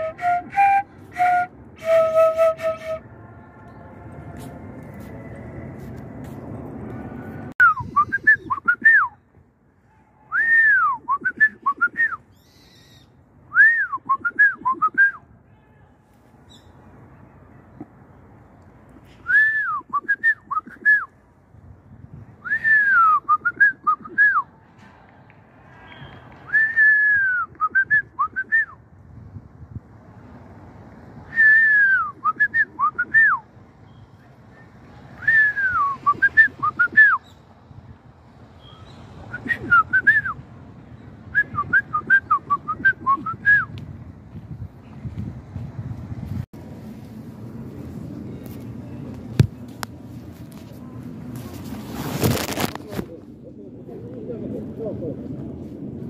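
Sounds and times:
person whistling: 7.6s - 9.2s, 10.3s - 12.2s, 13.5s - 15.2s, 19.2s - 21.1s, 22.4s - 24.4s, 26.5s - 28.8s, 35.2s - 37.2s, 39.3s - 40.4s, 41.4s - 43.8s.

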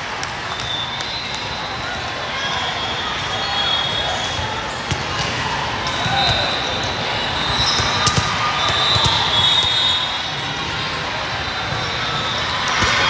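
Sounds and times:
echoing murmur of voices: 0.0s - 13.0s
volleyballs thudding: 7.6s - 9.8s.

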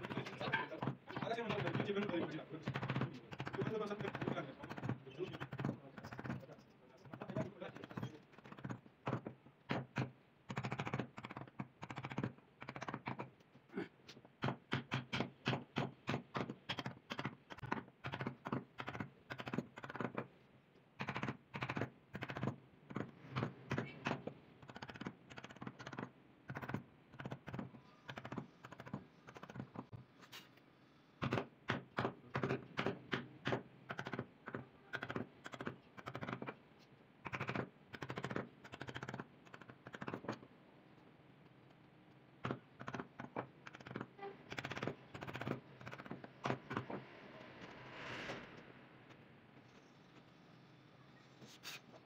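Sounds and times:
mallet tapping chisel into wood: 14.4s - 20.3s.

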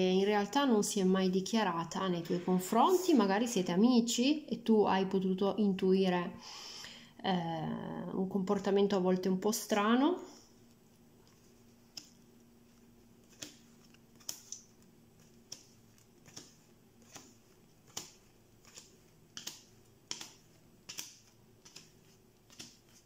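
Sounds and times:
playing cards snapping on table: 17.9s - 21.9s, 22.5s - 22.8s.

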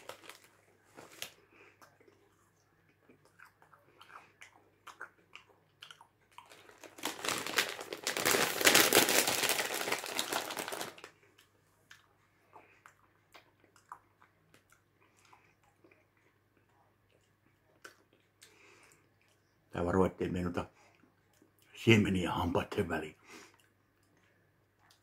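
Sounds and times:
popcorn bag crinkling: 0.0s - 1.4s, 6.3s - 11.2s
chewing popcorn: 0.0s - 19.9s, 20.8s - 21.8s, 23.4s - 25.0s.

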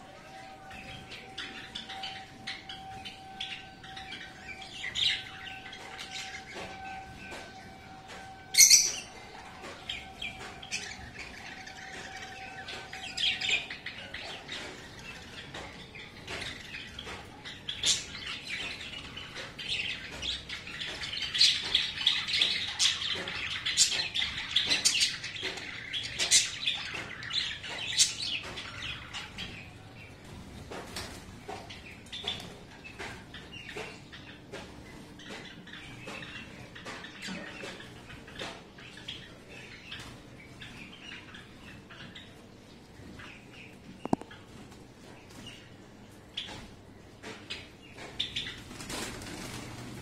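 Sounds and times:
budgerigars chirping: 0.4s - 30.2s.

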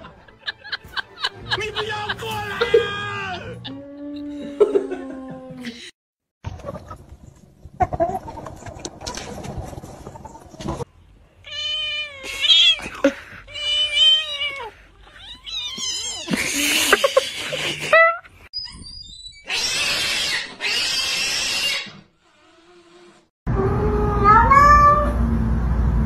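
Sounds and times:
cats meowing: 11.4s - 16.4s, 23.9s - 25.2s.

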